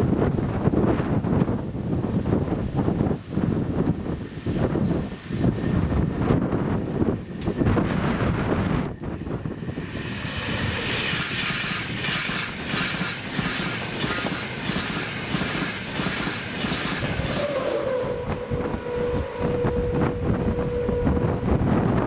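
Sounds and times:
train wheels on rails: 0.0 - 22.0
steady tone: 5.4 - 22.0.

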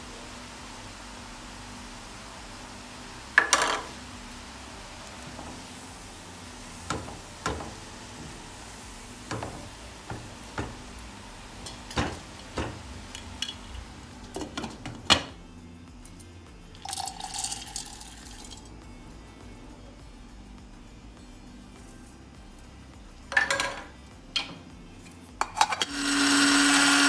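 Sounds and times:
faint steady hiss: 0.0 - 25.9
utensils knocking against pot: 3.4 - 3.9, 6.9 - 8.4, 9.3 - 10.9, 11.6 - 15.4, 23.3 - 24.6, 25.4 - 25.9.

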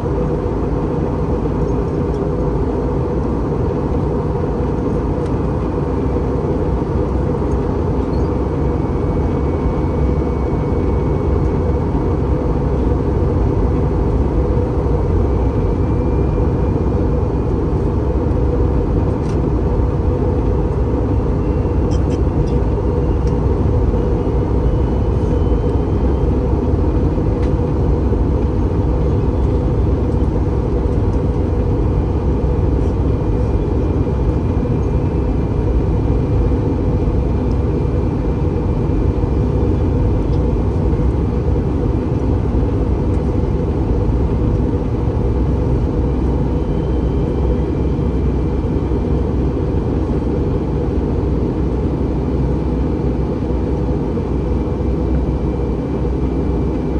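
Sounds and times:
airliner cabin noise: 0.0 - 56.9.

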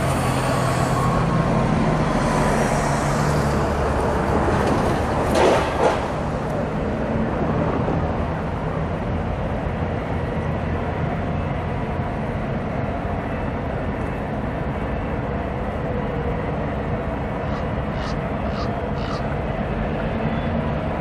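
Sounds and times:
low rumble of distant vehicles: 0.0 - 21.0.

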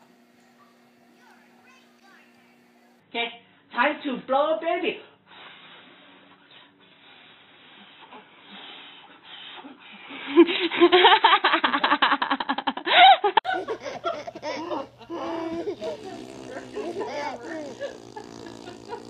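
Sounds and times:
soft breathy blowing: 5.3 - 10.1
second baby laughing: 13.0 - 19.0
baby giggling: 13.5 - 19.0.

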